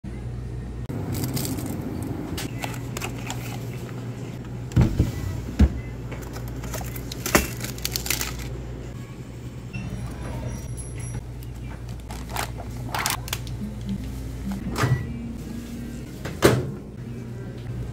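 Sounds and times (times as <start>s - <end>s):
plastic packaging handled: 6.2s - 8.5s, 11.9s - 13.5s.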